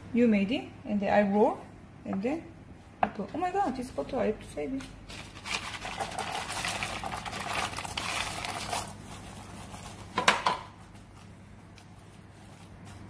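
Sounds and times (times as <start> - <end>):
beans shifting by hand: 5.1 - 10.1.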